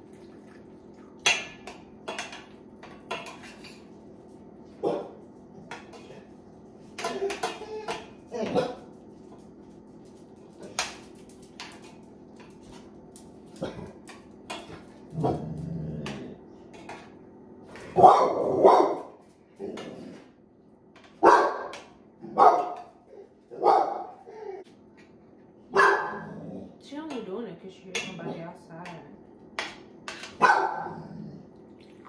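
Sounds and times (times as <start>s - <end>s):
dog barking: 4.8s - 5.2s, 18.0s - 19.2s, 21.2s - 22.9s, 23.5s - 24.5s, 25.7s - 26.3s, 30.4s - 31.0s.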